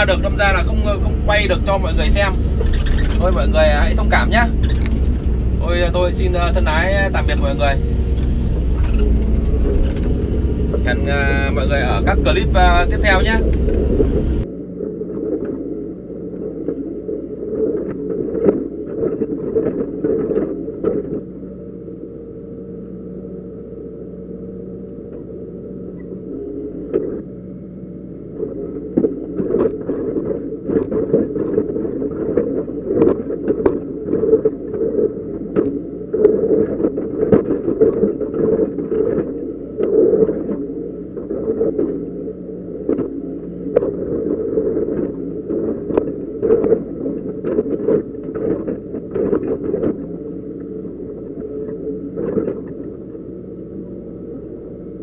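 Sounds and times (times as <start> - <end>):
excavator diesel engine running: 0.0 - 14.4.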